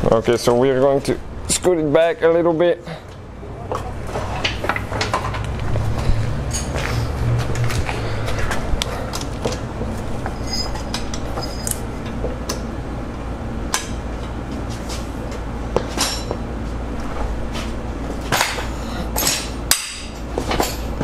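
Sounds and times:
steady low hum: 0:00.0 - 0:21.0
sharp metal knocks: 0:19.2 - 0:20.9.

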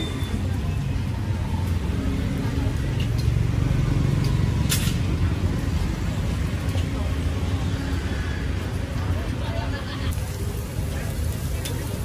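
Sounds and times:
street traffic: 0:00.0 - 0:12.0.

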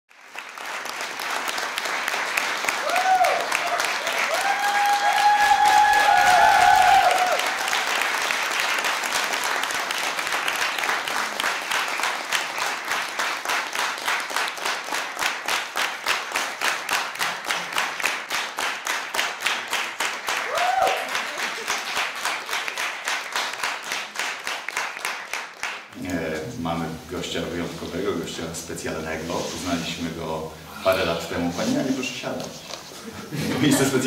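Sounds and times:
rhythmic clapping in unison: 0:00.1 - 0:26.1
audience applauding: 0:00.1 - 0:26.9.

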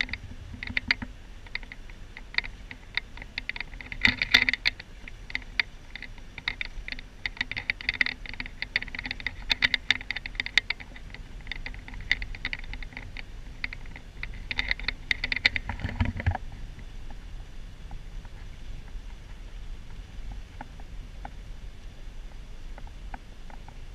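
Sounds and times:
rapid clicking and rattling: 0:00.0 - 0:16.4.

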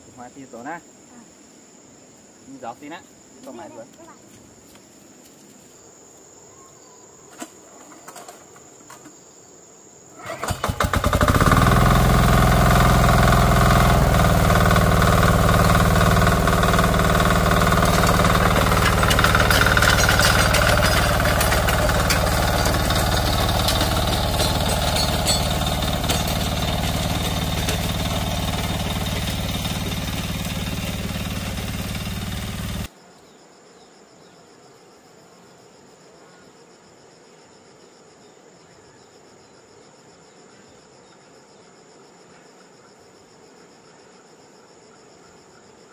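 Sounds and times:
small farm engine running: 0:10.2 - 0:32.9.

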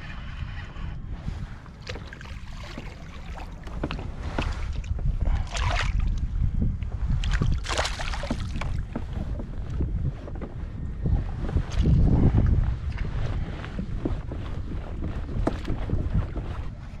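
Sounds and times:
wind rumbling on microphone: 0:00.0 - 0:17.0
water splashes: 0:01.8 - 0:06.2, 0:07.2 - 0:09.0.

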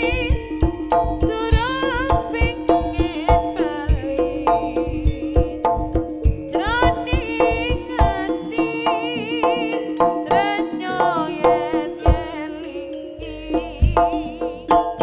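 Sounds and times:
kendang drum strokes: 0:00.0 - 0:12.4
high wavering melody: 0:00.0 - 0:15.0
low held tone: 0:00.0 - 0:15.0.

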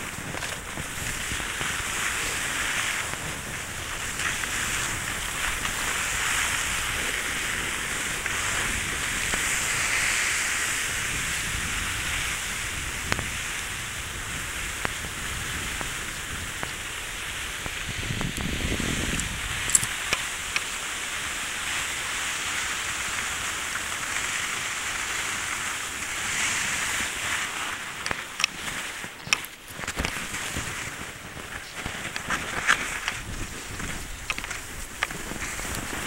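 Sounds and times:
skis hissing over snow: 0:00.0 - 0:36.0
sharp clicks: 0:19.1 - 0:20.6.

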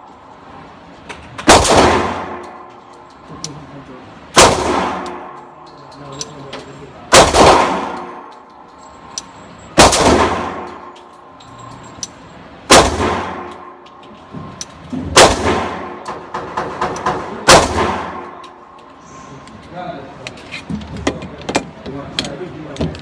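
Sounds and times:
pistol shots indoors: 0:01.4 - 0:02.9, 0:04.3 - 0:05.5, 0:07.1 - 0:08.5, 0:09.8 - 0:11.2, 0:12.6 - 0:13.9, 0:15.0 - 0:18.6.

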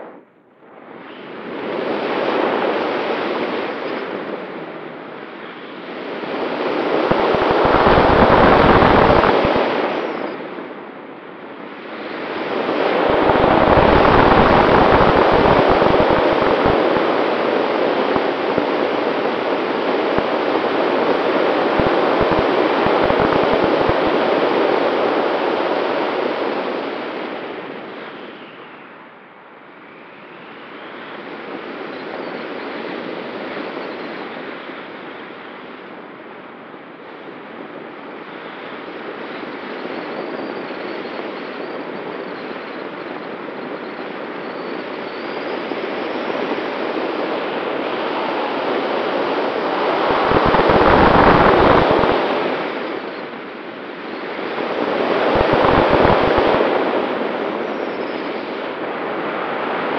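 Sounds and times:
wind rushing over microphone: 0:00.0 - 0:28.4, 0:41.8 - 0:59.9
wind gusts buffeting microphone: 0:06.0 - 0:10.7, 0:11.7 - 0:25.6, 0:47.0 - 0:59.9.

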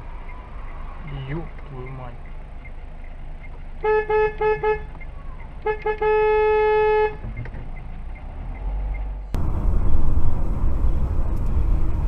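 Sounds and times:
car driving hum: 0:00.0 - 0:12.0
car horn honking: 0:03.8 - 0:05.0, 0:05.6 - 0:07.2.

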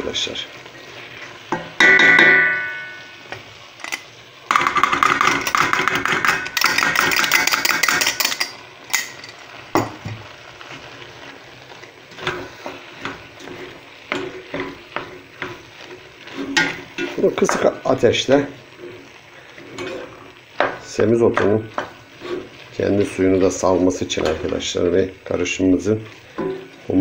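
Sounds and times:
spoon knocking metal pot: 0:01.5 - 0:03.0, 0:04.5 - 0:09.2
spoon scraping in a pot: 0:12.1 - 0:17.2, 0:18.6 - 0:20.7, 0:21.4 - 0:22.7.

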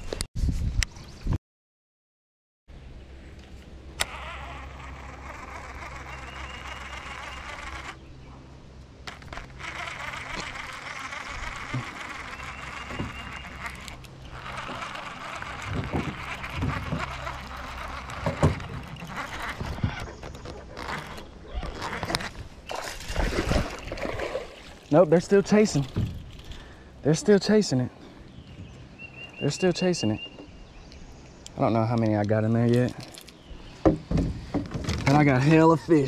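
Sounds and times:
electric motor humming: 0:03.9 - 0:08.2, 0:09.0 - 0:22.7.

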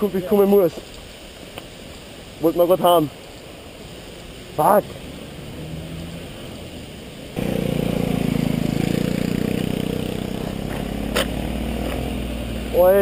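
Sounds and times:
muffled riding noise: 0:03.9 - 0:13.0
motorcycle engine idling: 0:07.4 - 0:12.7.

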